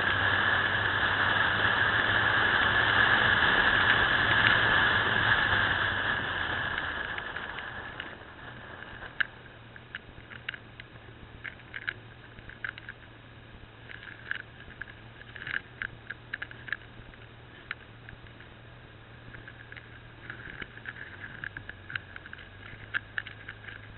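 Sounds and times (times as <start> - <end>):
wind noise while riding: 0.0 - 13.0, 19.3 - 23.9
motorcycle engine: 0.0 - 23.9.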